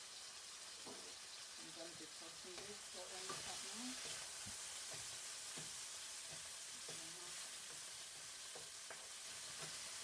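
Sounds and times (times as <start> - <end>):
chicken sizzling in frying pan: 0.0 - 10.0
spatula clicking against pan: 2.6 - 10.0.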